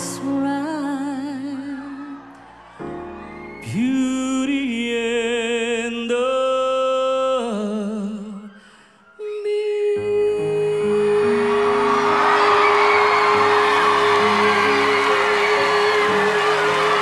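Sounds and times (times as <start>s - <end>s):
man singing with vibrato: 3.6s - 8.6s, 9.2s - 17.0s.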